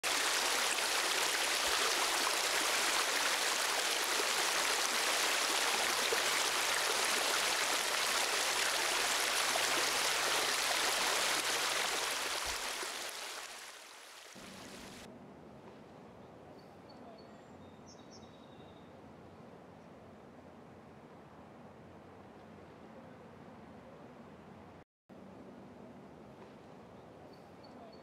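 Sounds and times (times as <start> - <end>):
fast stream rushing: 0.0 - 15.1.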